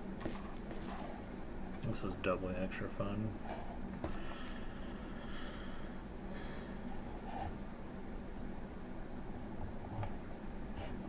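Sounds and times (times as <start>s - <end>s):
steady hiss and low hum: 0.0s - 11.0s
handling noise: 0.1s - 1.4s.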